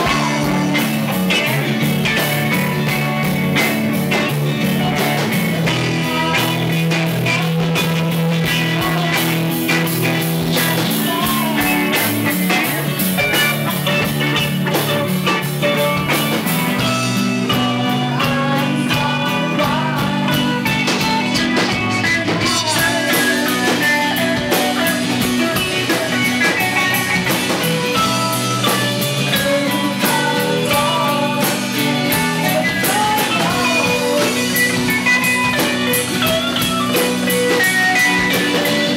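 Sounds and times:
woman singing: 0:00.0 - 0:01.7, 0:04.8 - 0:07.7, 0:08.4 - 0:14.1, 0:17.4 - 0:27.1, 0:29.2 - 0:35.3
rock band playing: 0:00.0 - 0:38.9.

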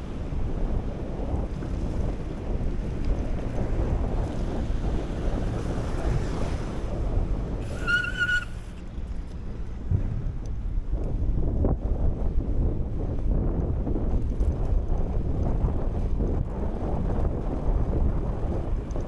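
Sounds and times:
wind buffeting microphone: 0:00.0 - 0:19.0
high-pitched squeal: 0:07.6 - 0:08.8.

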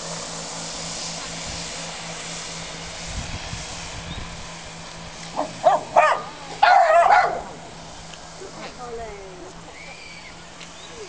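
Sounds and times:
dog barking: 0:05.4 - 0:07.5.

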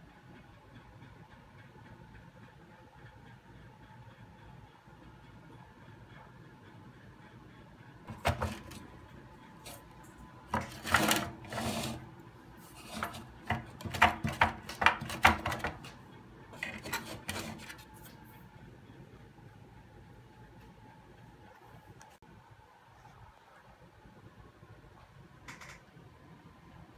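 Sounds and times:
handling clicks and scrapes: 0:09.6 - 0:16.0, 0:16.6 - 0:18.2.

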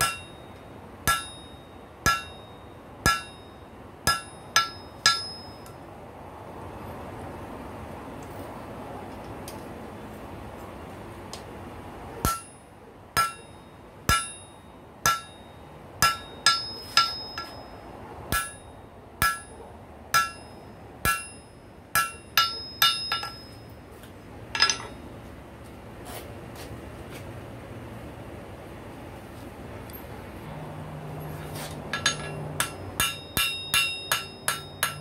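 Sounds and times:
hammer striking spike on anvil: 0:00.0 - 0:05.8, 0:12.2 - 0:12.6, 0:13.2 - 0:17.7, 0:18.3 - 0:23.6, 0:31.9 - 0:35.0.

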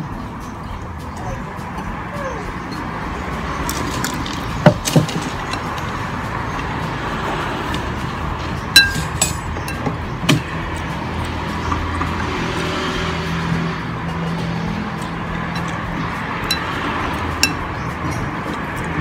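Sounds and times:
metal clinking on a bowl: 0:08.8 - 0:10.0, 0:15.5 - 0:18.3.

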